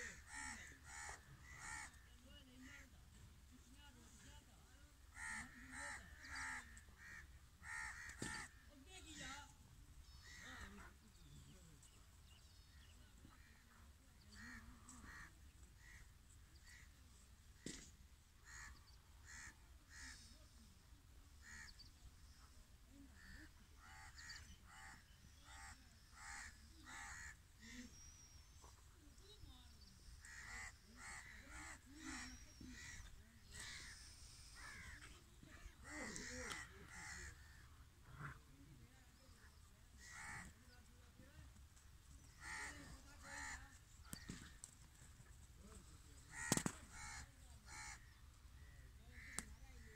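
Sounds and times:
crows cawing: 0.0 - 2.0, 5.1 - 8.6, 18.4 - 20.2, 23.2 - 27.8, 30.2 - 35.1, 35.7 - 37.7, 40.0 - 40.6, 42.4 - 44.5, 46.3 - 49.6.

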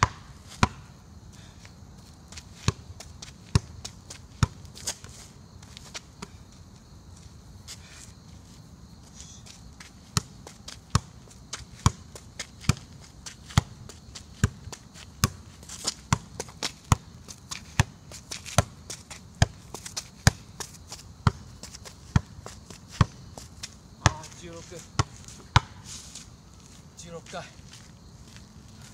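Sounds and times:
football thudding on foot: 0.0 - 0.8, 24.0 - 25.8.

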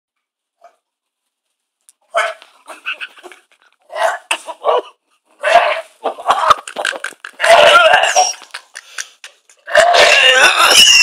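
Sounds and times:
man retching: 6.2 - 8.7, 9.6 - 11.0.

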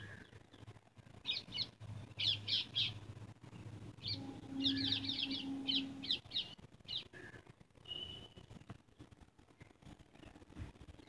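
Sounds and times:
small bird chirping: 0.0 - 11.0
low hum: 3.1 - 6.5.

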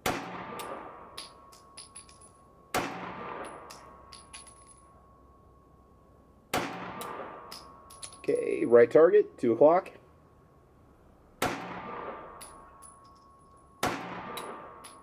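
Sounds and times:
gunshot echo: 0.0 - 1.2, 2.7 - 3.9, 6.5 - 7.7, 11.4 - 12.5, 13.8 - 15.0
pistol shot: 0.0 - 1.4, 2.7 - 3.9, 6.5 - 7.7, 11.4 - 12.6, 13.8 - 15.0
brass casings clinking: 0.6 - 9.0, 11.8 - 15.0.

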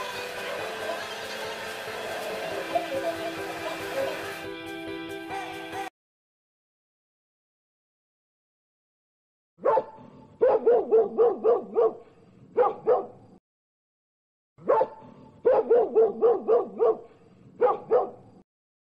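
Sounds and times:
recorded dog barking: 9.6 - 13.4, 14.6 - 18.4.

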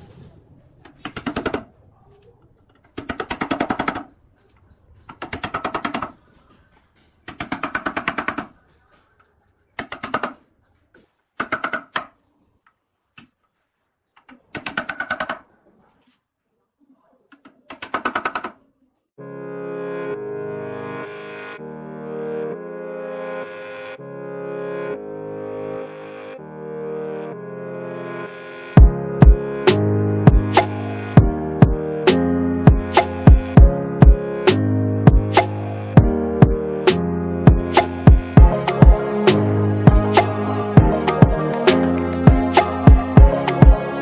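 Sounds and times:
music: 19.2 - 44.0.

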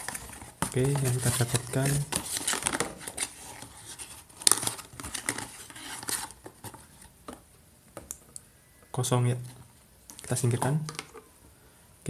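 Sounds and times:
cardboard box rustling: 0.0 - 7.4.

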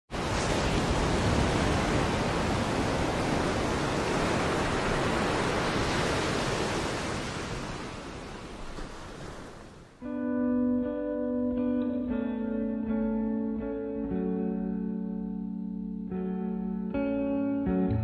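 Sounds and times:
ocean waves breaking: 0.1 - 10.0.

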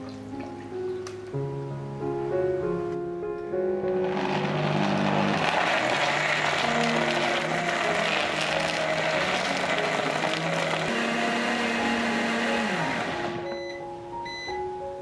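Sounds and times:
soft background music: 0.0 - 15.0
blender crushing ice: 3.8 - 13.5.

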